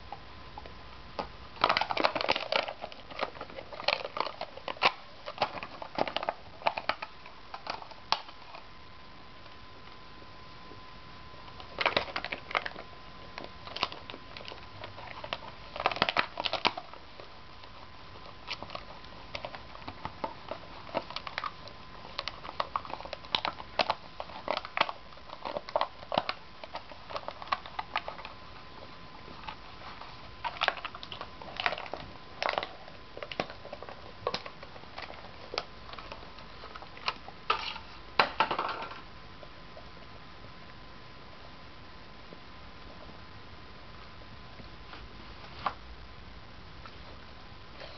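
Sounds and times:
plastic cup crackling: 0.0 - 8.7, 11.5 - 39.1.

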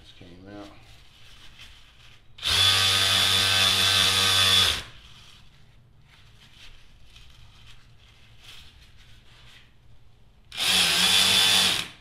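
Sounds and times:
electric ratchet motor whir: 2.4 - 5.0, 10.5 - 12.0.

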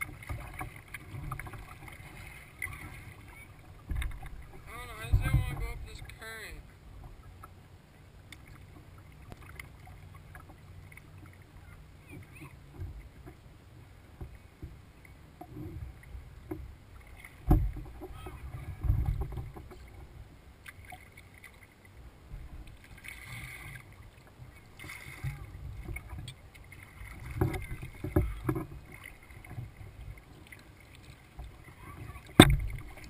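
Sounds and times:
water lapping against kayak hull: 0.0 - 33.0
dull thump: 32.3 - 32.9.

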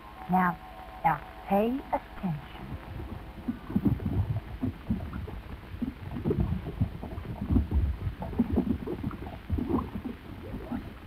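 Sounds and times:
deep rumbling with low thuds: 2.5 - 11.0.

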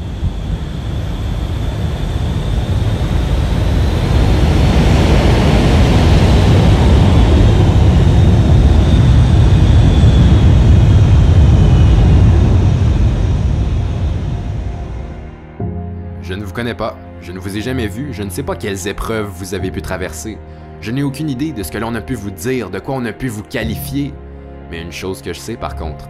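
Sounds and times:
aircraft flying past: 0.0 - 18.7.

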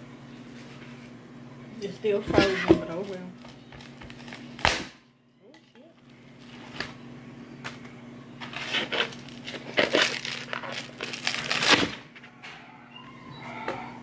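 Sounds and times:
plastic wrapping crinkling: 7.6 - 11.9.

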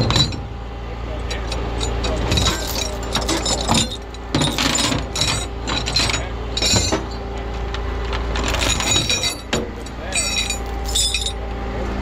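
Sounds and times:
metal chains clinking and rattling: 0.0 - 0.4, 1.3 - 7.2, 8.3 - 11.4
steady low hum: 0.0 - 12.0.

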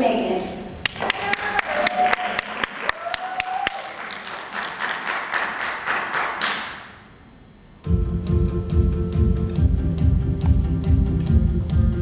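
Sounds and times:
audience applauding: 0.8 - 6.9
sharp close claps: 0.8 - 7.0.

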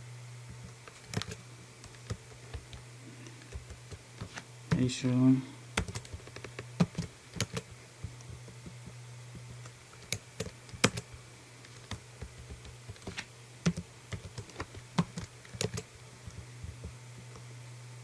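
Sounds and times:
steady low hum: 0.0 - 18.0
keyboard keystrokes: 0.6 - 2.8, 5.8 - 8.8, 9.4 - 11.1, 11.7 - 17.0.

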